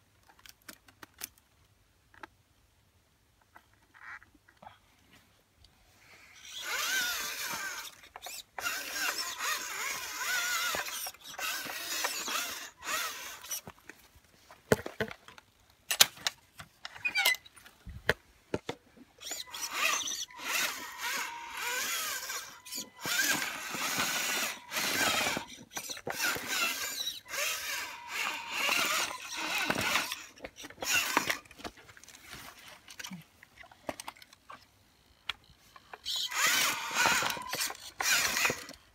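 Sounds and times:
electric motor whining: 6.4 - 13.6, 19.2 - 31.4, 36.1 - 38.8.

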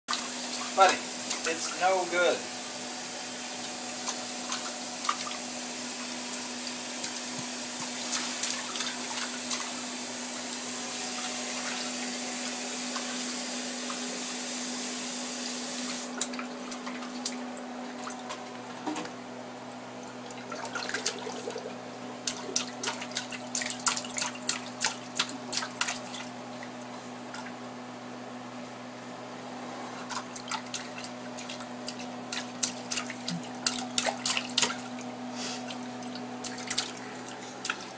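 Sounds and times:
steady low hum: 16.0 - 37.9.

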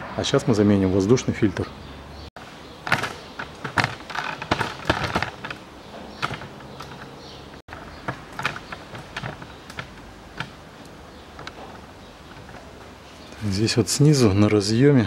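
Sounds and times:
scraping rustle: 2.7 - 14.5
light clicks and knocks: 2.8 - 13.4.

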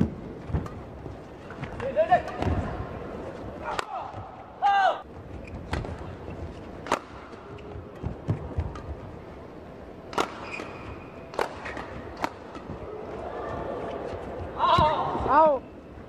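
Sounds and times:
rackets hitting shuttlecock: 3.6 - 4.4, 5.5 - 6.2, 6.8 - 9.0, 10.0 - 12.9
shoe squeaks on court: 10.2 - 11.8.

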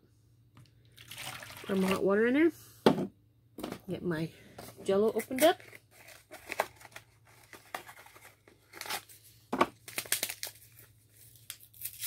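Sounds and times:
paper packet crinkling: 5.3 - 12.0.

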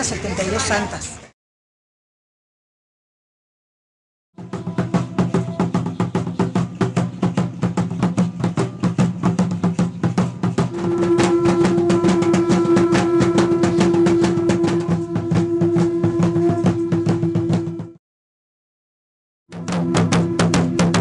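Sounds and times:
fast steady drumming: 4.4 - 18.0, 19.5 - 21.0
long held note: 10.7 - 18.0.

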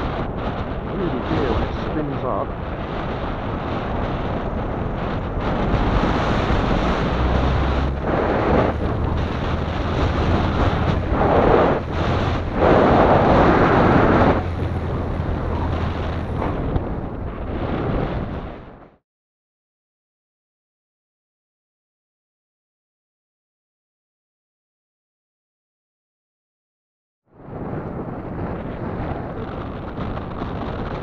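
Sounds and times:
strong wind buffeting microphone: 0.0 - 19.0, 27.3 - 31.0.

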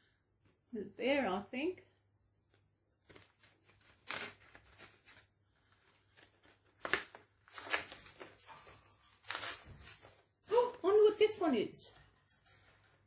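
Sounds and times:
knife scraping and tearing card: 3.0 - 5.2, 9.2 - 9.9.

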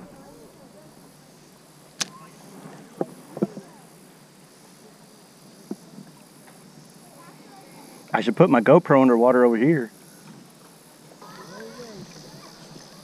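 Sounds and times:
flowing river water hiss: 0.0 - 13.0.

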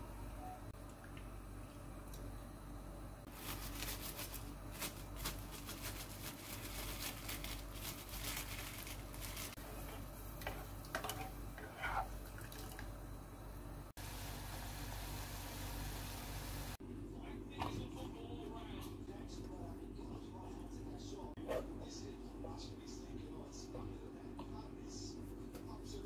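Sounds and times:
pot boiling: 8.8 - 16.8.

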